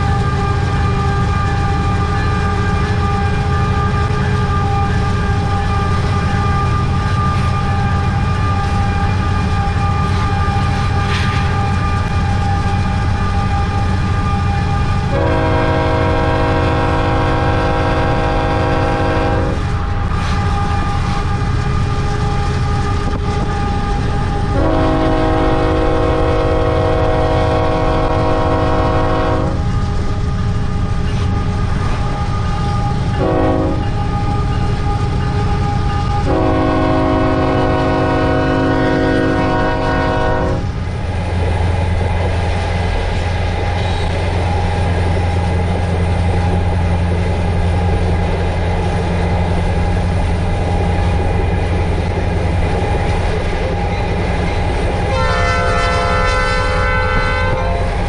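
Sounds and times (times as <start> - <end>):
freight train wheel clatter: 0.0 - 58.0
locomotive air horn blasts: 13.3 - 20.8, 24.5 - 29.7, 32.2 - 34.4, 36.1 - 40.7, 55.0 - 58.0.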